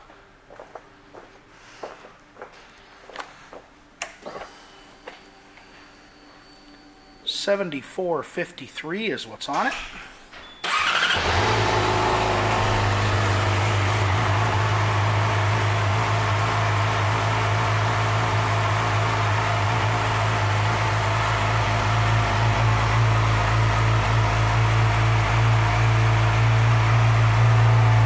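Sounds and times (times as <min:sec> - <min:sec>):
motorcycle engine idling: 0:10.7 - 0:28.0.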